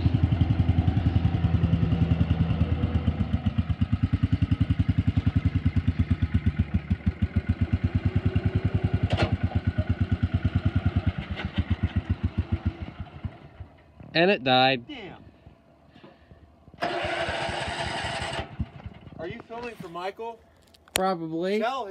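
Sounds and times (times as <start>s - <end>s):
small engine running poorly: 0.0s - 13.9s, 16.8s - 19.6s.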